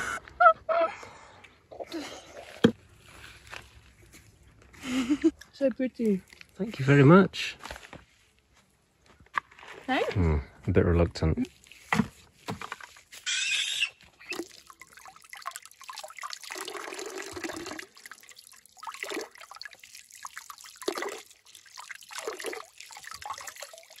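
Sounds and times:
vegetables rinsed in water: 14.2 - 24.0
water running into trough: 14.2 - 24.0.

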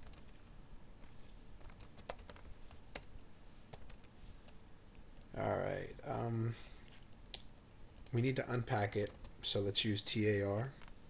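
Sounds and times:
computer keyboard keystrokes: 0.0 - 0.3, 1.6 - 4.1, 9.0 - 9.4.

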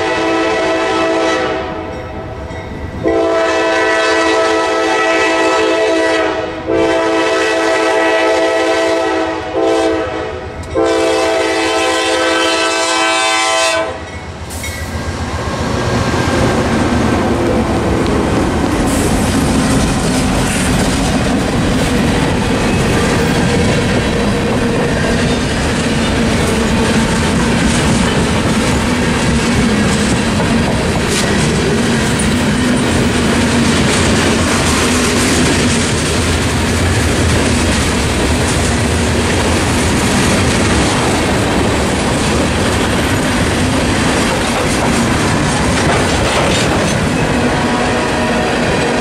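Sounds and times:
freight train rumbling past: 0.0 - 49.0
wheels clacking over rails: 18.0 - 47.5.

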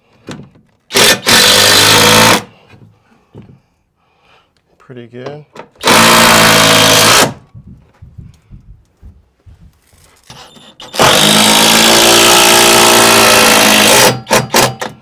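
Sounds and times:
power drill driving screw into wood: 0.9 - 2.5, 5.8 - 7.4, 10.3 - 15.0.

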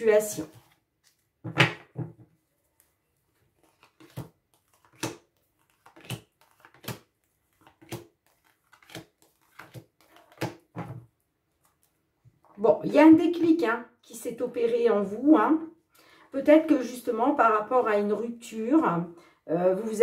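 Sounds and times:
cards slapping on wooden table: 3.8 - 11.0.

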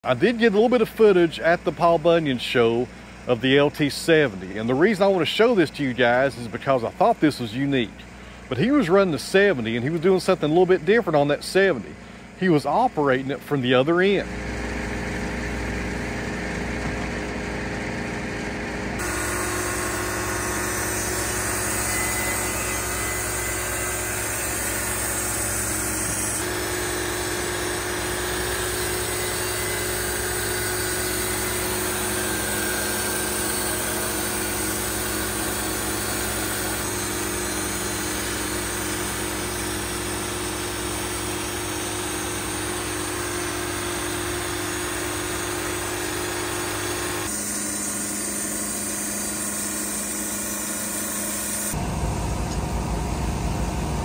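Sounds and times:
band sawmill sawing log: 0.0 - 51.9
high whine: 16.7 - 54.0.

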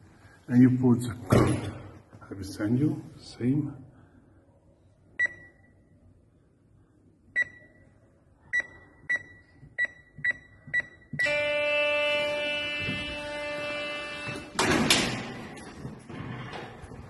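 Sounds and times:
keypad beeps: 8.5 - 11.4
electric door release buzzing: 11.2 - 15.4.

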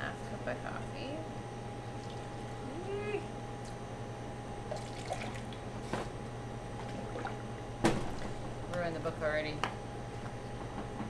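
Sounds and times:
coffee pouring: 1.9 - 2.6.

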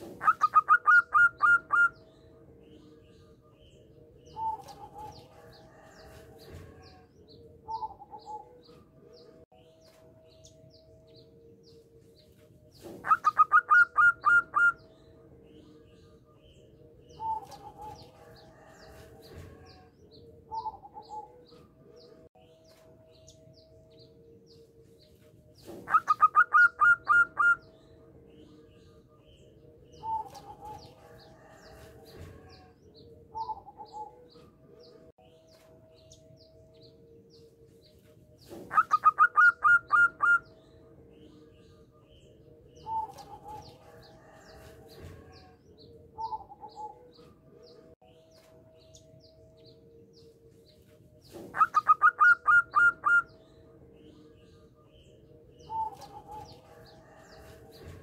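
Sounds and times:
dove cooing: 0.0 - 2.0, 4.3 - 8.7, 12.8 - 14.8, 17.1 - 19.9, 25.6 - 27.7, 33.3 - 34.3, 38.5 - 40.4, 46.2 - 47.3, 51.3 - 53.4.

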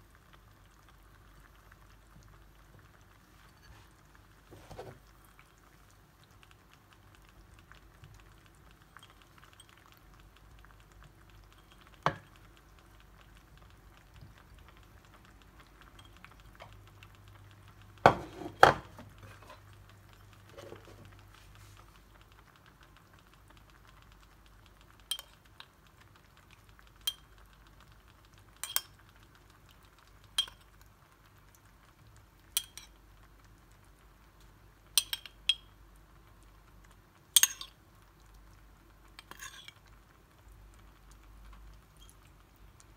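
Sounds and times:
dishes knocking: 18.1 - 19.0
metal spoon clinking ceramic bowl: 25.1 - 25.4, 27.1 - 27.3, 28.6 - 28.9, 30.4 - 30.6, 32.6 - 32.9, 35.0 - 35.7, 37.4 - 37.8, 39.2 - 39.8.

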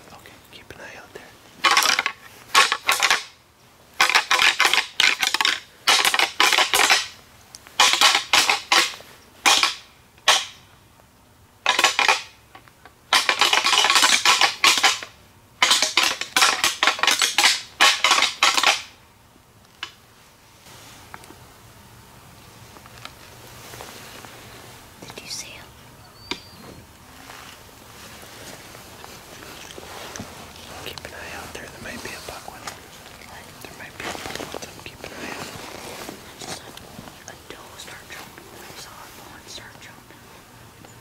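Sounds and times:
hard objects clattering: 13.1 - 18.9.

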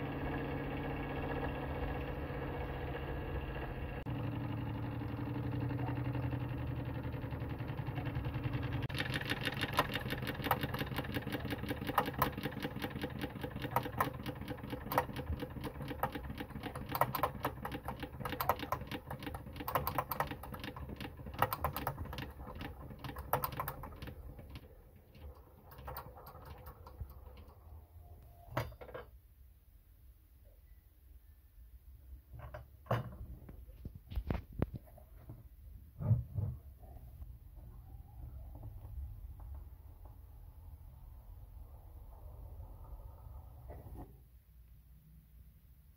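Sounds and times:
model steam engine rattling: 4.7 - 27.6.

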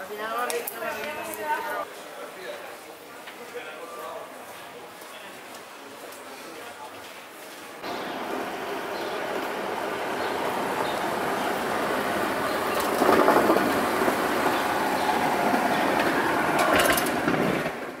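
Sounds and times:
vehicle rolling past on wet street: 7.8 - 18.0.

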